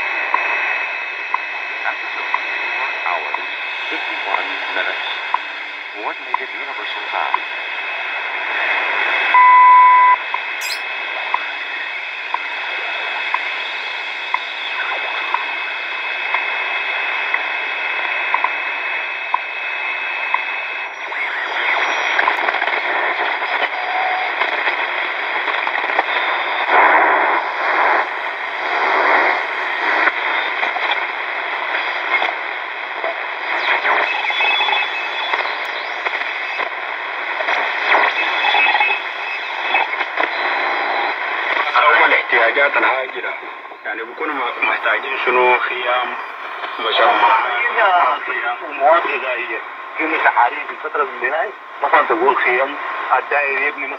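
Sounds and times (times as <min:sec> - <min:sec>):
radio static and hiss: 0:00.0 - 0:53.9
brief steady beep: 0:09.4 - 0:10.9.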